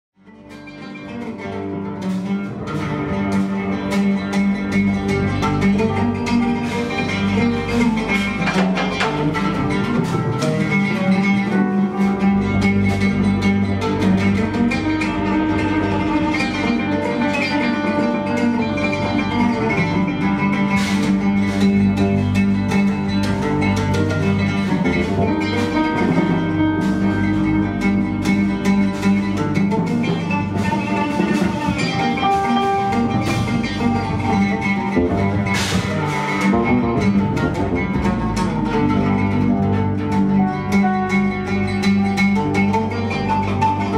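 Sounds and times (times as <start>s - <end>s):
held electric bass notes: 0.2s - 43.9s
plucked guitar: 0.2s - 43.9s.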